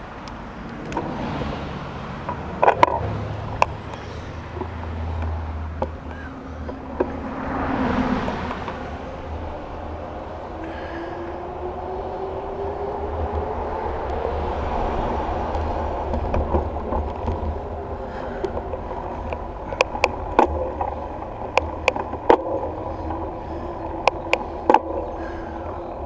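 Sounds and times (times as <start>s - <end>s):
wind buffeting microphone: 0.0s - 26.0s
sharp clicks and rattles: 0.2s - 7.2s, 15.4s - 26.0s.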